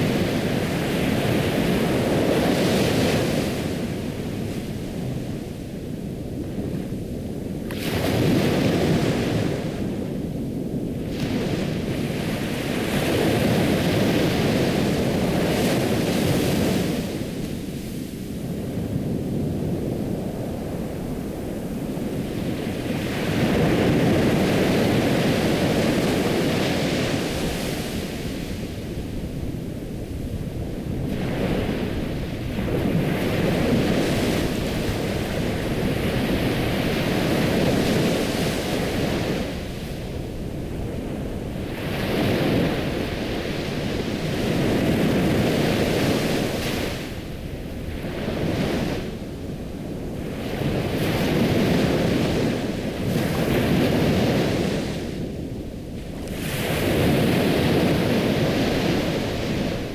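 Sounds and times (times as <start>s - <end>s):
waves breaking: 19.6s - 59.9s.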